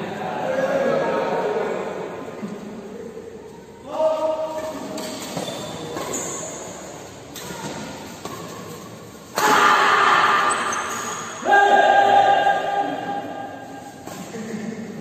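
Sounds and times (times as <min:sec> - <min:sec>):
players shouting: 0:09.4 - 0:13.4
loud held yells: 0:11.4 - 0:13.0.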